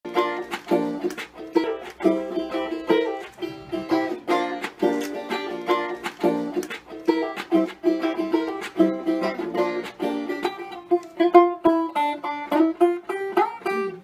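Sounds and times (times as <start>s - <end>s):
banjo tune: 0.0s - 14.0s.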